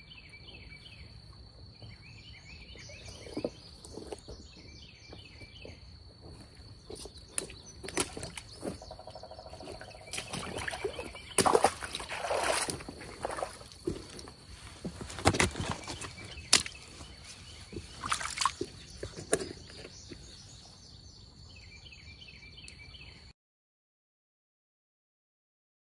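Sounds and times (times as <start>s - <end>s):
high insect drone: 0.0s - 19.0s
river water splashing: 7.2s - 19.4s.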